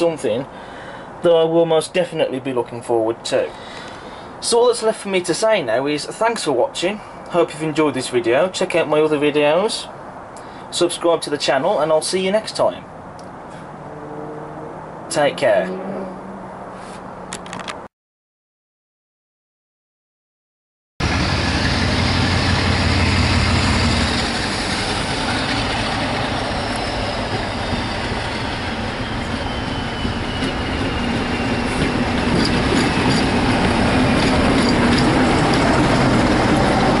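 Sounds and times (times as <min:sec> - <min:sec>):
diesel locomotive engine: 0:21.0 - 0:37.0
wheels clicking over rail joints: 0:24.2 - 0:37.0.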